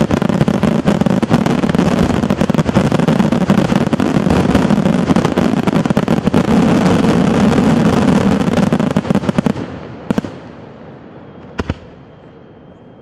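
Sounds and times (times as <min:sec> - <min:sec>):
fireworks bursts and crackling: 0:00.0 - 0:12.6
firework bang: 0:11.5 - 0:12.1.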